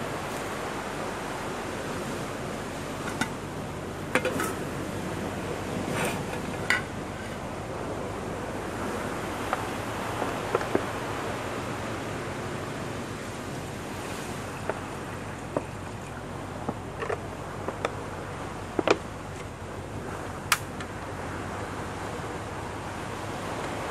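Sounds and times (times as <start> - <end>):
metal pot clattering on stove: 4.2 - 4.6.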